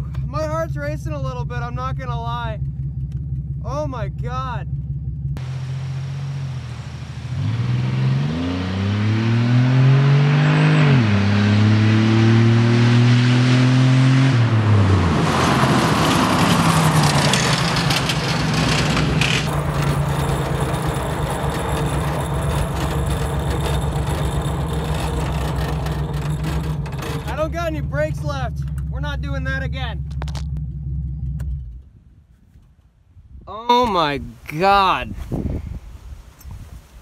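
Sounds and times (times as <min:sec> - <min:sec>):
car engine accelerating: 0:04.6 - 0:32.0
tyre and wind noise: 0:30.1 - 0:37.0.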